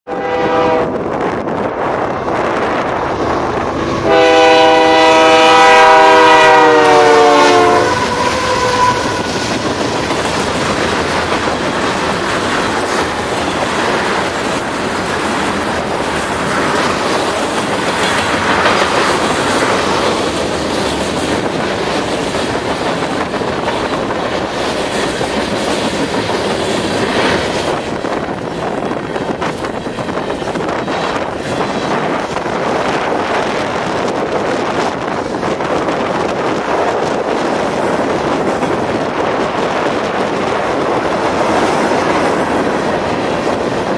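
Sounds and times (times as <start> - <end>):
locomotive horn blast: 0.1 - 1.0, 4.0 - 9.6
train cars rumbling and clacking: 0.1 - 43.9.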